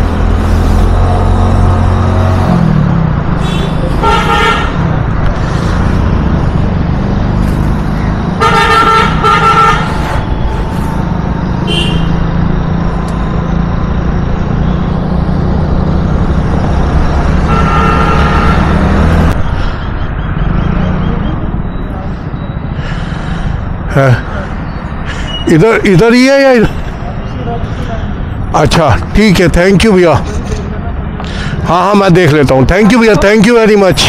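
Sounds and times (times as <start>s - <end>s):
traffic engine hum: 0.0s - 34.0s
vehicle horns honking: 3.4s - 4.9s, 8.4s - 10.4s, 11.6s - 12.2s, 17.4s - 19.1s.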